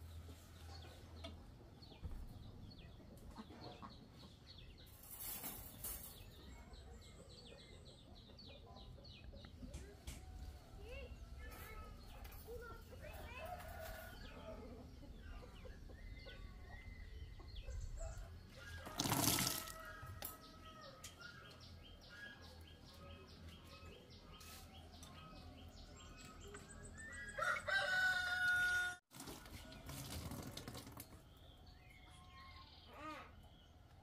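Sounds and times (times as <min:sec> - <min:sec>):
chickens clucking: 0:00.4 - 0:05.0
rooster crowing: 0:27.3 - 0:29.0.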